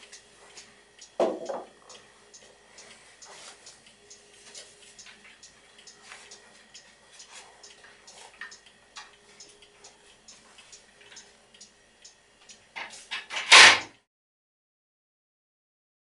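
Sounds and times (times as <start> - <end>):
faint steady hum: 0.0 - 13.4.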